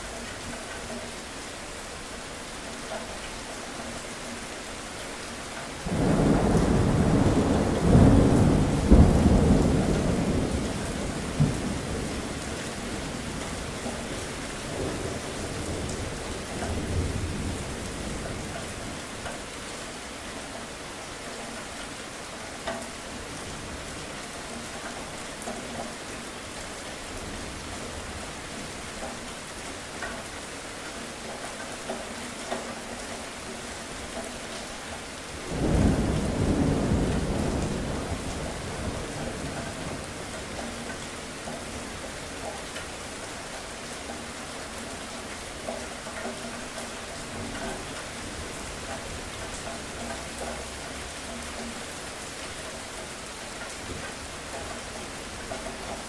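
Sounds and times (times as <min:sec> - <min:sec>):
steady rain: 0:00.0 - 0:56.0
thunder rolling: 0:05.8 - 0:13.3.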